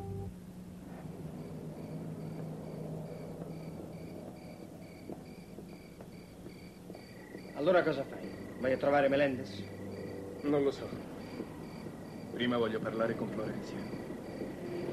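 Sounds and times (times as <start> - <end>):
crickets chirping: 0.0 - 14.9
low steady hum: 0.0 - 14.9.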